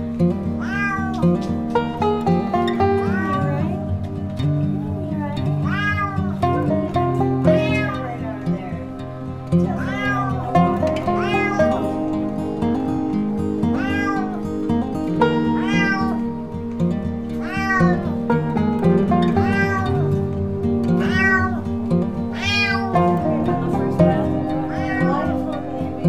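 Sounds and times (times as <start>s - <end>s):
background music: 0.0s - 26.0s
cat meowing: 0.6s - 1.4s, 2.8s - 3.8s, 4.8s - 6.8s, 7.4s - 8.6s, 9.6s - 12.1s, 13.6s - 14.7s, 15.4s - 16.4s, 17.4s - 18.2s, 19.2s - 20.1s, 20.9s - 23.3s, 24.6s - 25.6s.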